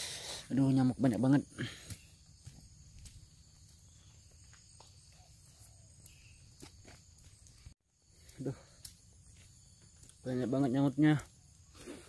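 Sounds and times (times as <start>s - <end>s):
insects chirring: 0.0s - 12.0s
footsteps on dirt path: 1.6s - 10.2s.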